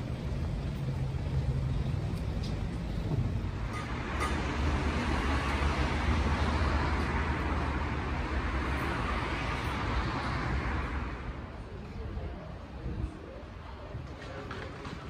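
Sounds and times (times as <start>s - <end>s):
low traffic rumble: 0.0s - 15.0s
vehicle passing: 3.5s - 11.4s.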